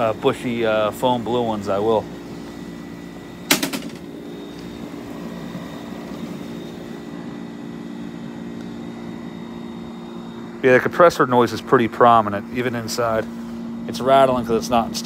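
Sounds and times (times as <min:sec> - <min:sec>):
air conditioner compressor hum: 0:00.0 - 0:15.0
fan and airflow noise: 0:00.0 - 0:15.0
cover closing clack: 0:03.5 - 0:04.1.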